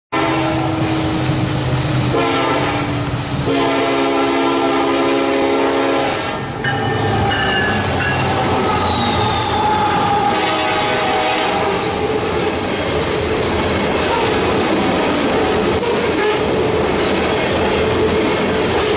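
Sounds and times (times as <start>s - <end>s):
locomotive air horn blasts: 0.1s - 1.2s, 2.1s - 12.1s, 16.1s - 16.5s
diesel locomotive engine: 0.1s - 18.9s
train wheels rolling on rails: 0.2s - 18.9s.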